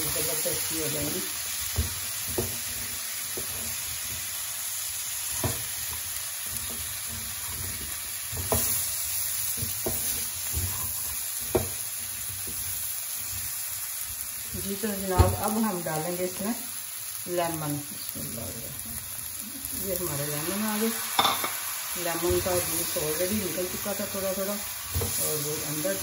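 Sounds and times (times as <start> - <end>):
vegetables sizzling in oil: 0.0 - 26.0
spatula scraping and tapping pan: 1.6 - 4.4, 5.2 - 14.3.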